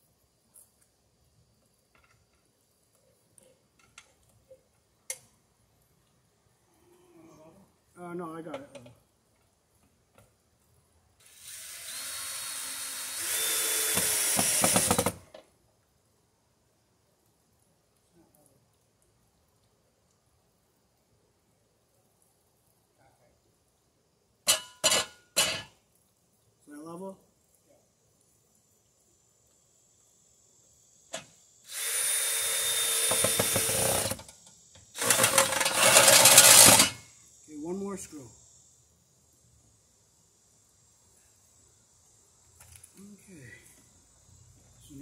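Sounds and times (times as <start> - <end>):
cordless drill running: 11.2 - 15.2, 31.7 - 34.2, 35.0 - 36.9
rapid drill clicks: 11.4 - 15.2, 31.7 - 34.2, 35.0 - 36.9.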